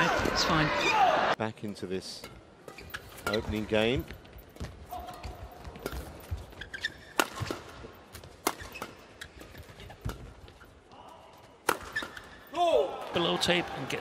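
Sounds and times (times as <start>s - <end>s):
rackets hitting shuttlecock: 7.0s - 10.3s, 11.6s - 12.4s.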